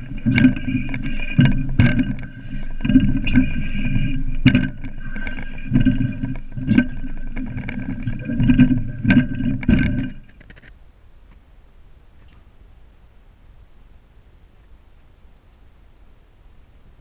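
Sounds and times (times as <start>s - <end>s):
steady high ringing: 0.0s - 10.4s
climbing gear knocking on metal pole: 0.0s - 10.7s
constant rumble: 0.0s - 17.0s.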